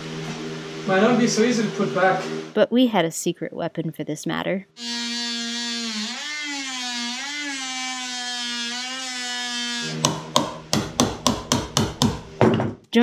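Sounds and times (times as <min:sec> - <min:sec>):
oscillating multi-tool buzzing: 0:04.8 - 0:10.2
hammer knocks: 0:10.0 - 0:12.8.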